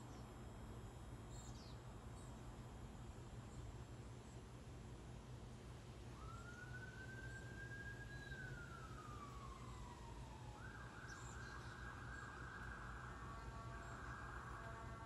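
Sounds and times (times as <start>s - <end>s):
faint emergency siren: 5.8s - 15.0s.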